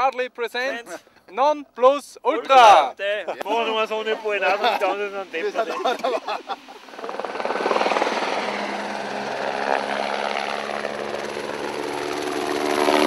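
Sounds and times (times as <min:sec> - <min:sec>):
helicopter flying overhead: 0:03.4 - 0:13.0.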